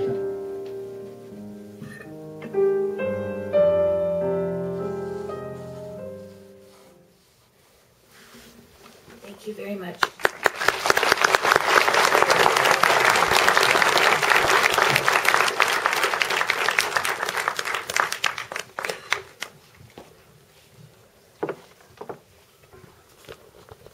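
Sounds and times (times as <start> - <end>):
audience applauding: 10.0 - 19.6.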